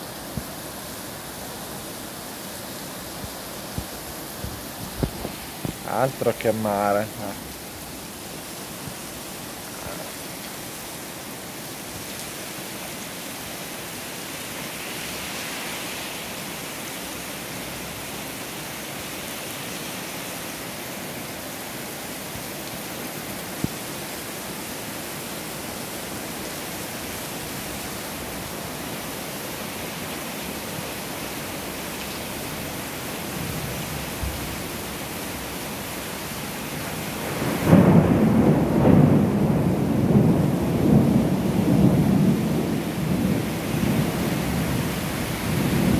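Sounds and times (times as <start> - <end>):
rain falling on street: 0.0 - 45.9
thunder rumble: 37.2 - 44.8.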